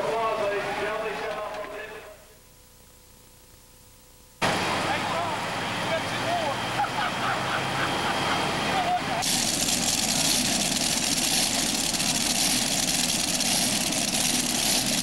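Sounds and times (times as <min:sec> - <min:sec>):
voices: 0:00.0 - 0:02.4, 0:04.4 - 0:09.2
pulling tractor engine running: 0:04.4 - 0:15.0.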